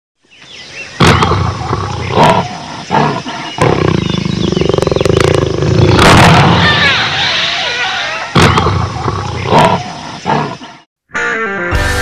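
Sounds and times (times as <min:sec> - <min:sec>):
big cat roaring: 0:01.0 - 0:10.8.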